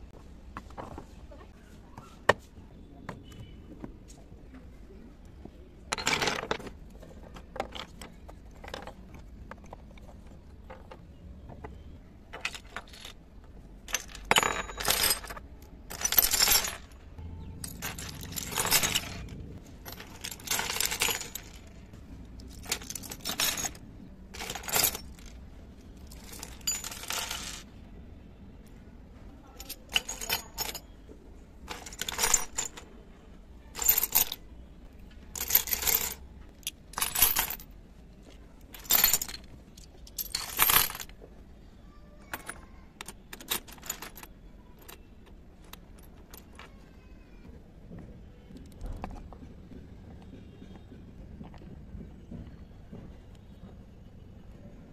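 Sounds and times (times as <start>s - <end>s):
toy utensils clattering on floor: 13.9s - 17.0s, 17.6s - 21.6s, 24.4s - 25.4s.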